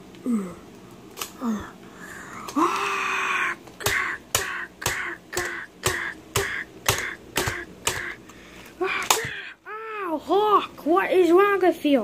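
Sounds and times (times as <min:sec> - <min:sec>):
child crying out: 0:02.6 - 0:08.2
child making punching sounds: 0:02.6 - 0:08.2, 0:08.8 - 0:09.6.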